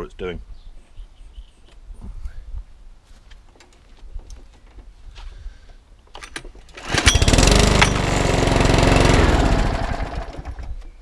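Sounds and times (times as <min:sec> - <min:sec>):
lawnmower engine starting and stalling: 0:06.2 - 0:11.0.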